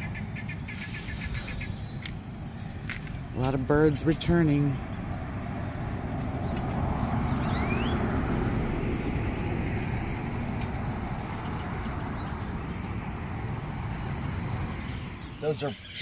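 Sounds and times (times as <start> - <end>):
traffic or wind rumble: 0.0 - 16.0
rising bird call: 7.3 - 8.1.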